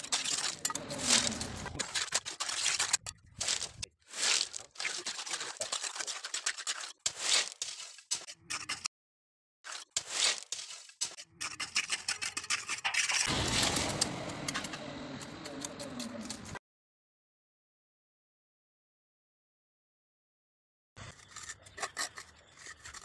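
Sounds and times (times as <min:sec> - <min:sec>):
scraping cement mortar: 0:00.0 - 0:08.9, 0:09.6 - 0:16.6, 0:21.0 - 0:23.0.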